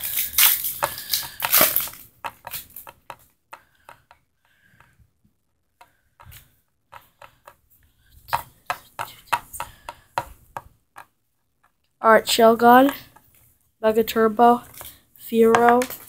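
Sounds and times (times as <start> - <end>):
foil wrapper crinkling and tearing: 0.0 - 2.8
cards clicking and tapping: 0.1 - 5.0, 5.8 - 7.6, 8.2 - 11.8, 14.6 - 16.0.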